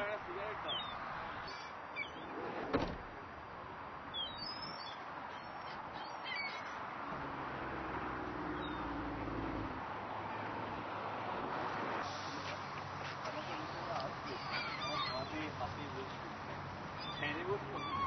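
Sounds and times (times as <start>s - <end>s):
gulls calling: 0.0s - 2.9s, 4.2s - 7.0s, 14.2s - 18.0s.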